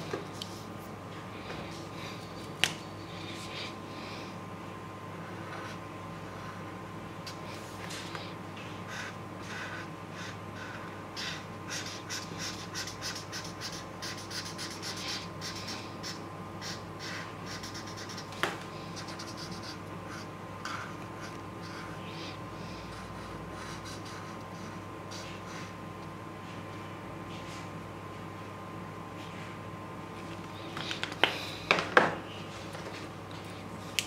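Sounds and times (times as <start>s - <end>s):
faint steady hum: 0.0s - 34.0s
marker scratching on paper: 8.9s - 18.4s, 19.0s - 25.7s.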